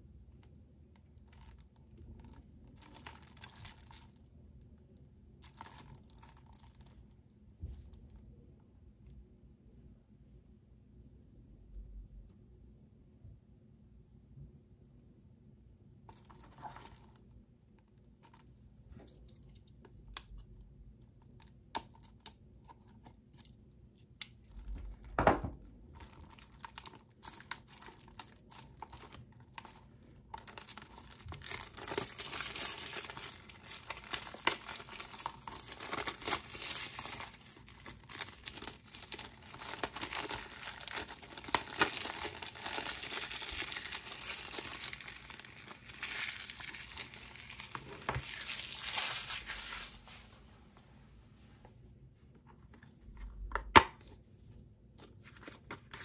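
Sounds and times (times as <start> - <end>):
plastic film tearing and crinkling: 2.7 - 4.2, 5.4 - 6.8, 26.0 - 50.4
fingers picking at plastic wrap: 26.0 - 49.9.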